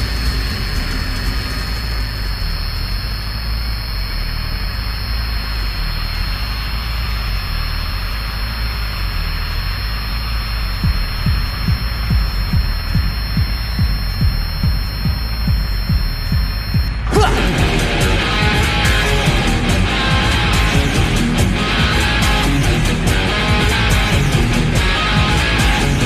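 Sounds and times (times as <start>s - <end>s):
live rock stage noise: 0.0s - 26.0s
low drone: 0.0s - 26.0s
deep thumps: 10.7s - 17.1s.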